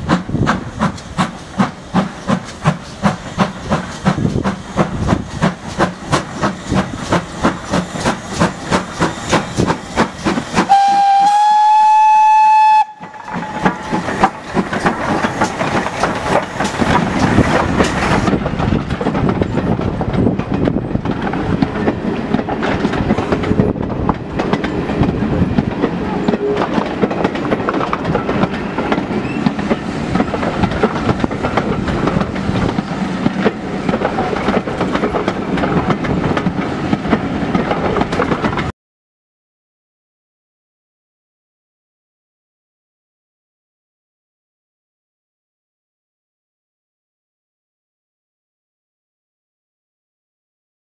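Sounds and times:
train wheels clattering on rails: 0.0s - 11.5s, 12.7s - 38.7s
steam locomotive exhaust beats: 0.0s - 38.7s
steam whistle: 10.6s - 14.1s.

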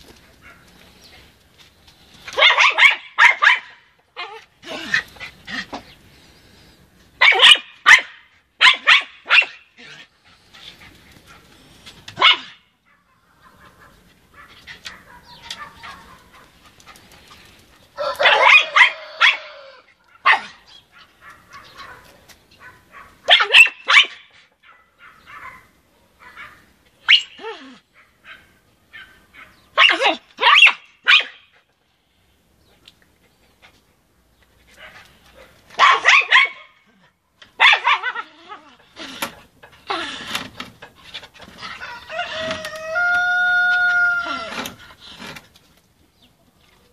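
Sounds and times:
small dog barking: 2.4s - 3.8s, 7.2s - 9.6s, 12.2s - 16.5s, 18.0s - 27.4s, 28.0s - 31.5s, 34.8s - 36.9s, 37.6s - 38.3s.

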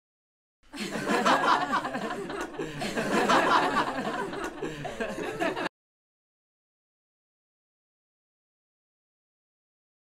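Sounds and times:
man laughing loudly: 0.8s - 5.7s.

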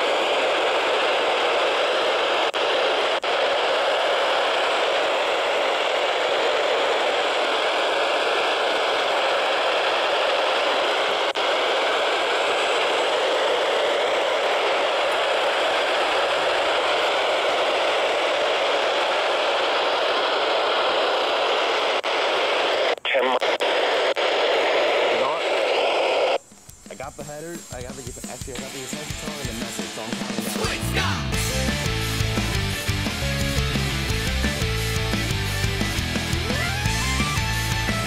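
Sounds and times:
radio static hiss: 0.0s - 38.0s.

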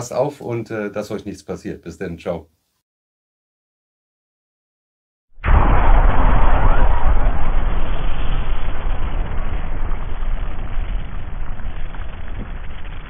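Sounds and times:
rushing whoosh of flames: 5.4s - 13.0s.

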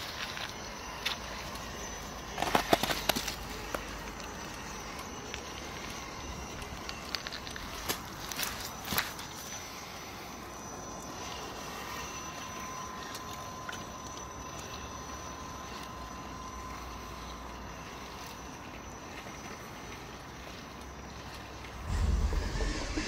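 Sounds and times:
tyres crunching on gravel: 0.0s - 9.5s
thin electric motor whine: 0.0s - 23.0s.

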